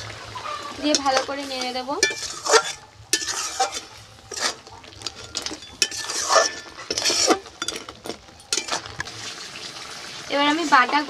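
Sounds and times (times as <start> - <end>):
metal spatula scraping a pan: 0.3 - 9.1.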